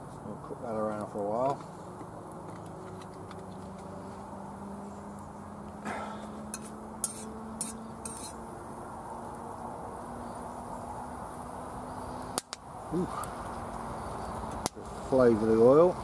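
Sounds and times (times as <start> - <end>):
oil frying hiss: 6.0 - 16.0
metal spoon scraping wok: 6.5 - 8.4.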